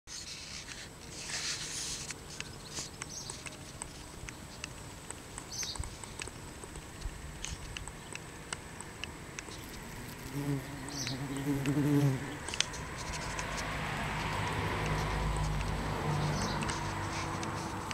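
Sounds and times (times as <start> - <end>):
faint ticks and rustles: 0.1 - 17.9
bumblebee wings buzzing: 9.6 - 13.4.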